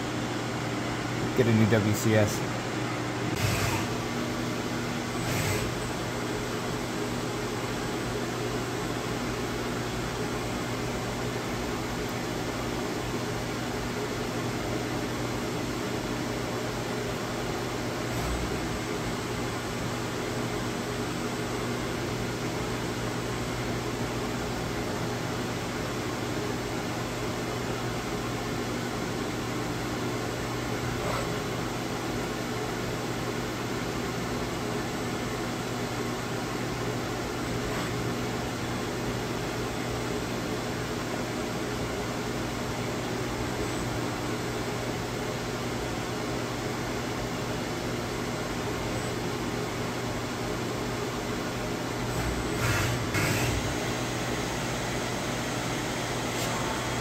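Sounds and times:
machine electrical hum: 0.0 - 57.0.

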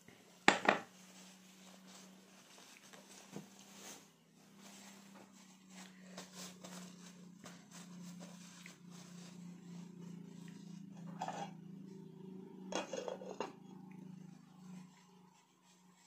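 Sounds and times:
steady low hum: 0.0 - 16.0
paper tissue rustling: 0.9 - 10.2.

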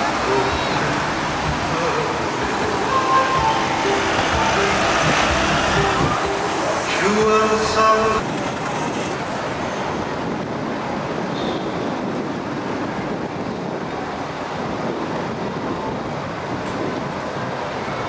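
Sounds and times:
traffic: 0.0 - 18.0
wind on the microphone: 8.0 - 18.0.

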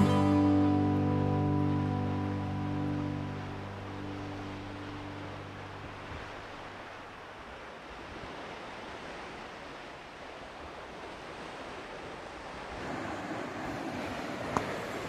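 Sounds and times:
wind: 0.0 - 15.0
surf breaking on rocks: 11.2 - 15.0.

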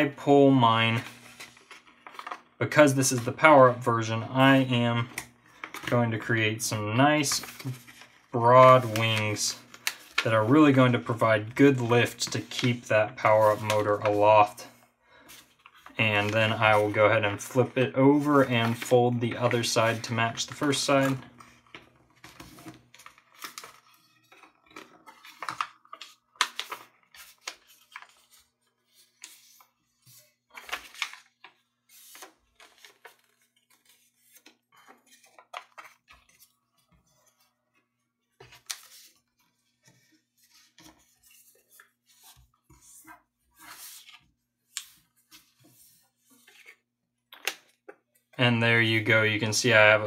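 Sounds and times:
paper rustling and crinkling: 0.0 - 48.0.

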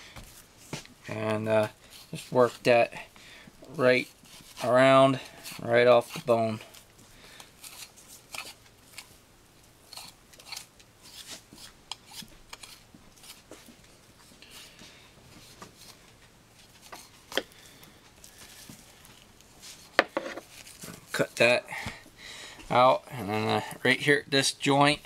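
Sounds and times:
knife scraping bone and board: 4.0 - 6.6, 7.6 - 9.1, 9.9 - 13.5.

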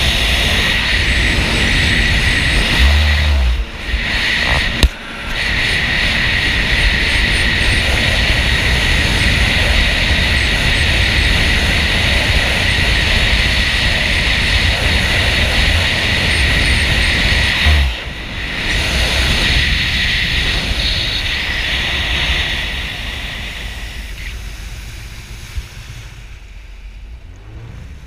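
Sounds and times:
jet ski engine running: 0.0 - 28.0
wind and water noise: 0.0 - 28.0.

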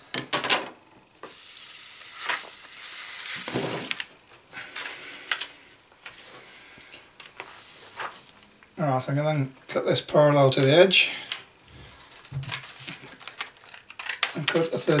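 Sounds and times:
plastic rustling and crackling: 11.7 - 15.0
scissors cutting plastic film: 12.1 - 15.0.

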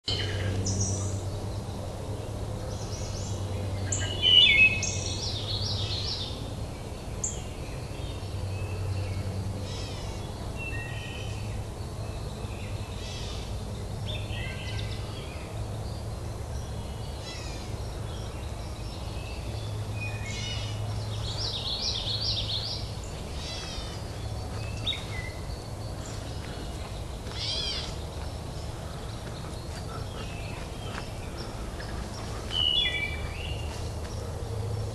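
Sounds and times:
birds chirping and trilling: 0.1 - 34.9.

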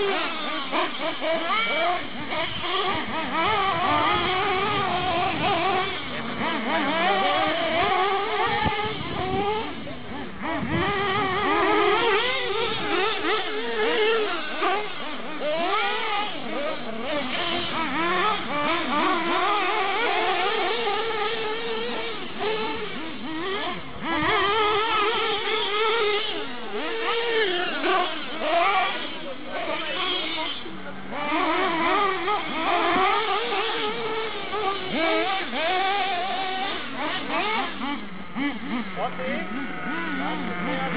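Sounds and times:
small engines revving and whining: 0.0 - 40.9.

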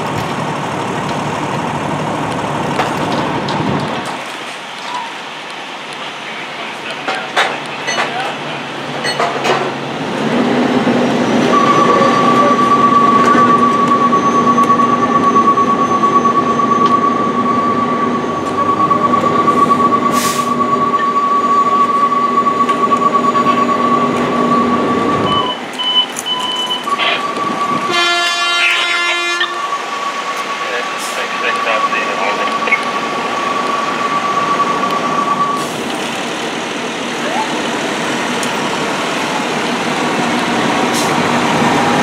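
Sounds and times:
short beeps: 11.5 - 28.4
brief multi-tone sound: 11.5 - 35.7
steady high-pitched tone: 11.5 - 35.7.

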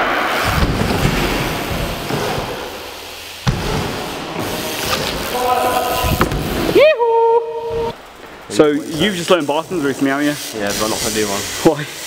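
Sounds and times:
bike tyres rolling over ramps: 0.0 - 12.0.

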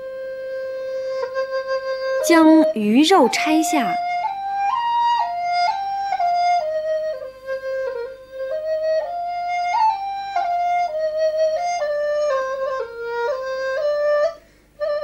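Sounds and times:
solo flute melody: 0.0 - 15.0.

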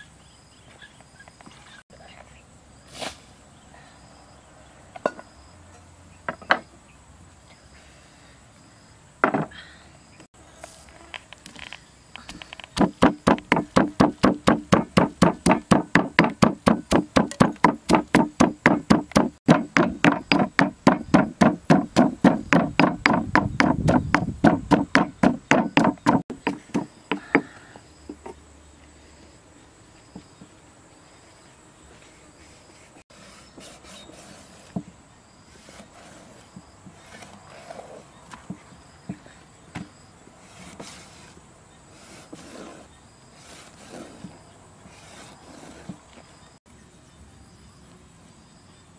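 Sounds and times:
pestle pounding in stone mortar: 12.8 - 27.5.

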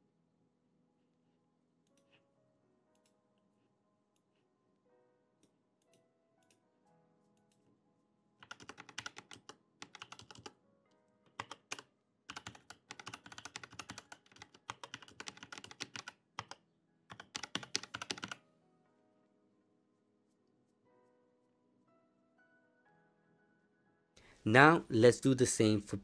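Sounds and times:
quiet background music: 0.0 - 26.0
keyboard typing clicks: 8.4 - 10.6, 11.3 - 18.4.

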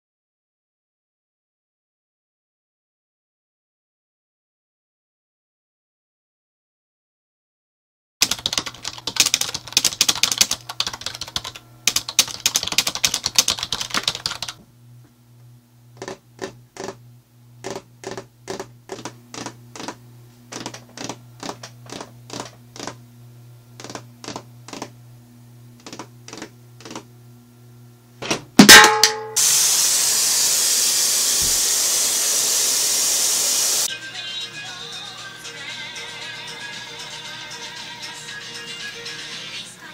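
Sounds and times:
typing on computer keyboard: 8.2 - 14.6, 16.0 - 17.0, 17.6 - 23.0, 23.8 - 24.9, 25.8 - 27.0
loud steady hiss: 29.4 - 33.9.

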